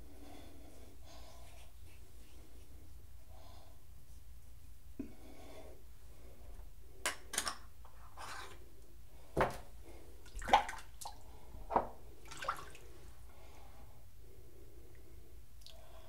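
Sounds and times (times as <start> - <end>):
water splashing in a sink: 10.3 - 11.3, 12.2 - 12.9.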